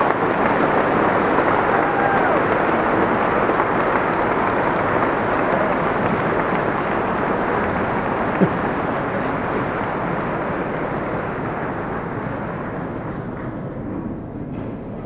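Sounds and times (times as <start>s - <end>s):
large audience applauding: 0.0s - 14.2s.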